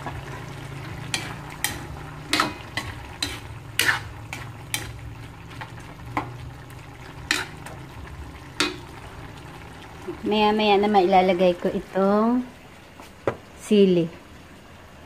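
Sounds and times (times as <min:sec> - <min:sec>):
metal spatula scraping wok: 0:00.0 - 0:05.1, 0:07.2 - 0:07.6.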